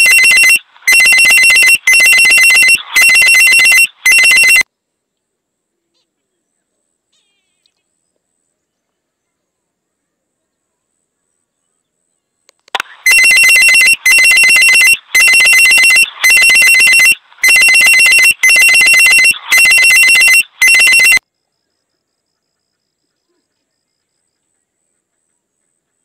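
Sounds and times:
electronic telephone ringing: 0.0 - 4.6, 12.8 - 21.2.

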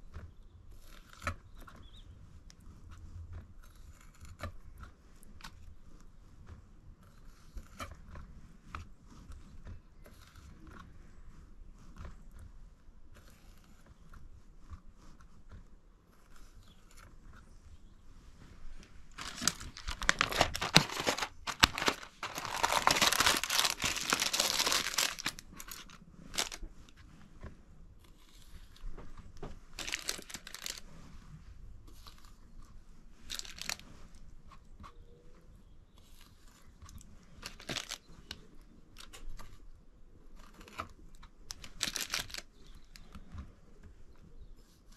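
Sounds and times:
crinkly material crackling: 0.0 - 34.9, 36.0 - 44.9
material tearing: 19.1 - 26.6, 29.8 - 30.9, 33.3 - 33.8, 41.5 - 43.0.

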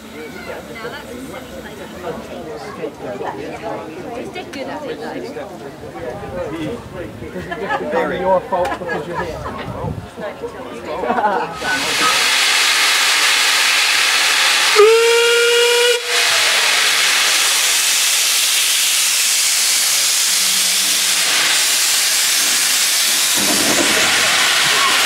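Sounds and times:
steam locomotive hissing: 11.5 - 25.0
steam whistle blast: 13.6 - 20.1.

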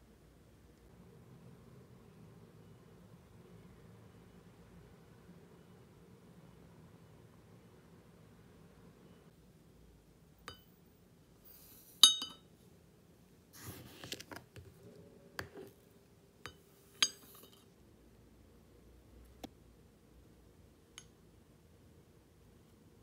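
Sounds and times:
teacup and glass jar clinking: 12.0 - 12.4.

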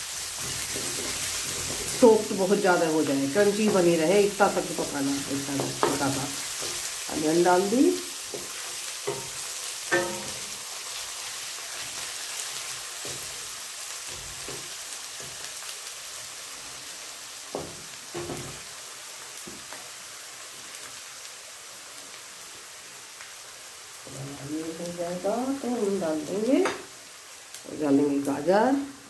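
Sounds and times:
wooden spatula stirring in pan: 0.0 - 19.9
onions sizzling in oil: 0.0 - 29.0.

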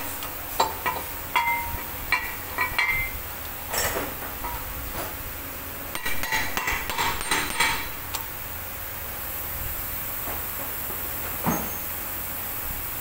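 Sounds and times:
hammer tapping metal nut: 6.0 - 7.9.

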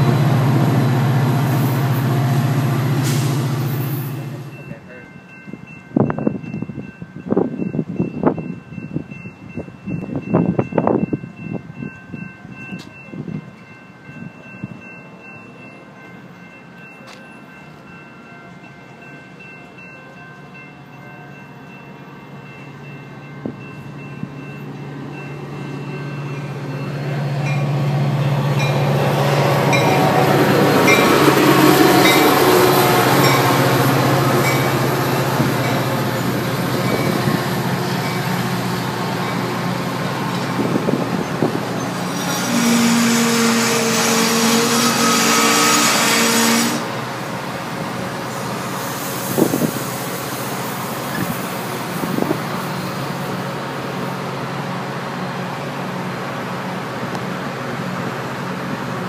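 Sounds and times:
diesel locomotive engine: 0.0 - 59.0
train cars rolling past: 0.0 - 59.0.

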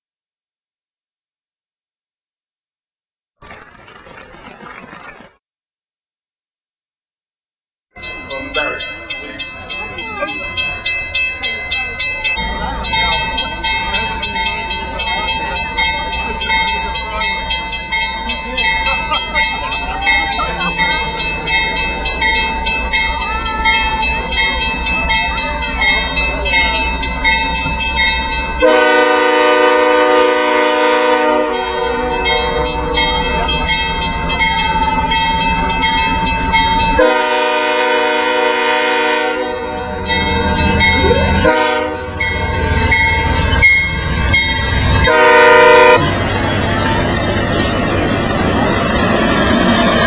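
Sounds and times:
diesel locomotive engine rumble: 8.0 - 50.0
locomotive bell ringing: 8.0 - 50.0
train air horn blasts: 28.6 - 32.6, 37.0 - 39.7, 41.4 - 42.2, 45.1 - 46.0.

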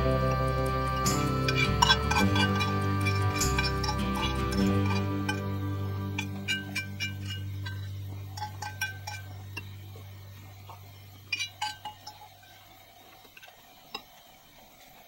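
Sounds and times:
low held tone: 0.0 - 12.3
fork scraping a metal pan: 1.0 - 9.7.

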